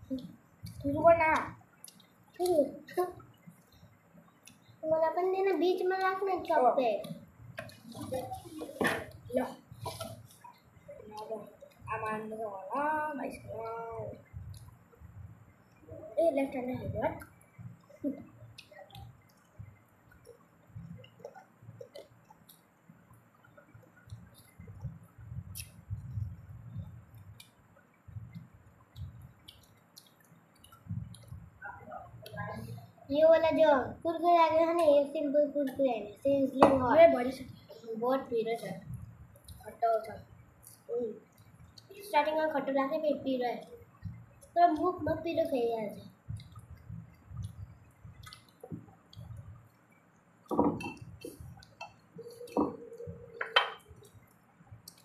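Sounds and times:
chewing and mouth noises: 0:00.0 - 0:04.8, 0:17.1 - 0:33.0, 0:38.8 - 0:42.1, 0:43.6 - 0:55.0
wet chewing: 0:27.1 - 0:31.6, 0:46.0 - 0:55.0.

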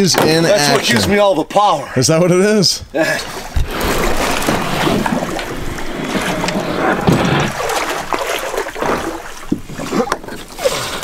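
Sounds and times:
water splashing around canoe: 0:03.2 - 0:11.0.

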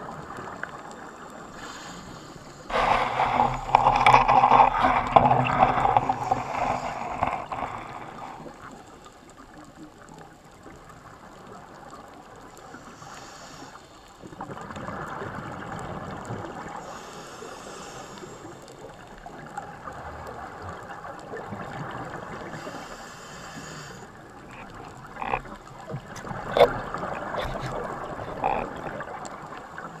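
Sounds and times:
muffled underwater rush: 0:00.0 - 0:11.8, 0:19.3 - 0:30.0
regulator exhalation bubbles: 0:24.5 - 0:29.3.

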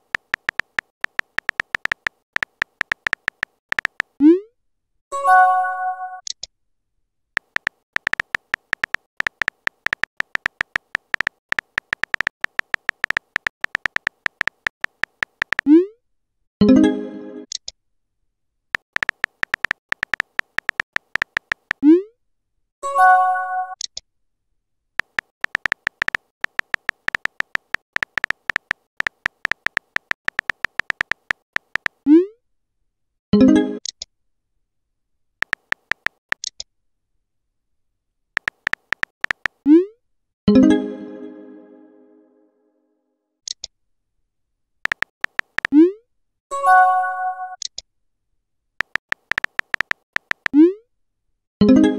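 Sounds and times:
electronic typing ticks: 0:00.0 - 0:04.2, 0:07.4 - 0:15.8, 0:18.8 - 0:21.8, 0:25.0 - 0:32.0, 0:35.4 - 0:36.6, 0:38.4 - 0:39.6, 0:44.8 - 0:45.8, 0:48.8 - 0:50.6.

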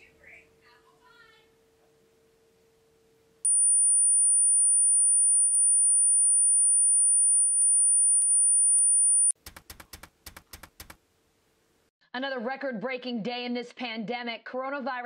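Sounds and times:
high-pitched electronic tone: 0:03.5 - 0:09.3.

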